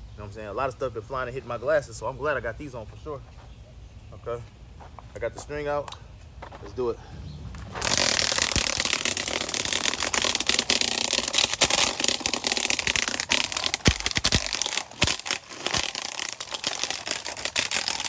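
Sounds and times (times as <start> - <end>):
trimmer line crackling and ticking: 7.5 - 18.0.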